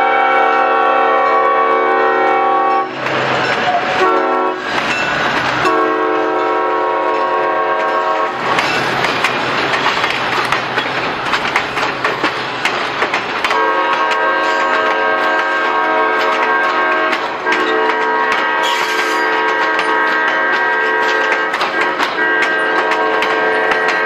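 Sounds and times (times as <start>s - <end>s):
train chime horn blasts: 0.0s - 3.0s, 3.6s - 4.6s, 5.6s - 8.4s, 13.5s - 24.0s
train wheels clickety-clack: 0.0s - 24.0s.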